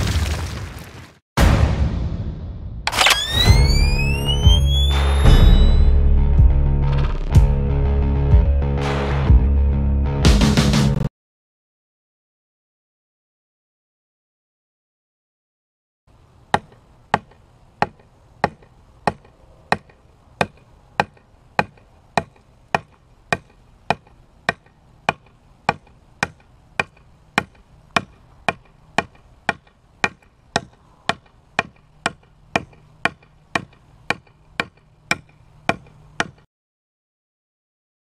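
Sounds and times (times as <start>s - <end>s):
knife chopping wood: 16.5s - 36.5s.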